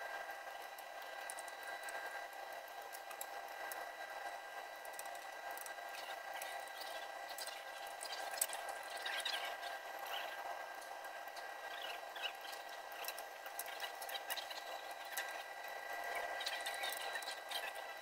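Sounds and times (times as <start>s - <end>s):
faint high whining tones: 0.0s - 18.0s
torque wrench ticks and taps: 2.7s - 3.8s.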